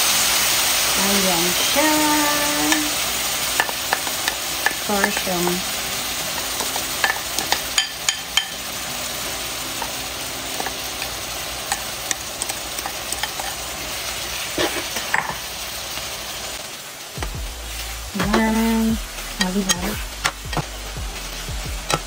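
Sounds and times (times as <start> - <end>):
meat sizzling in a frying pan: 0.0 - 22.0
wooden spoon scraping and stirring: 10.6 - 13.6, 14.3 - 15.4, 17.8 - 20.7.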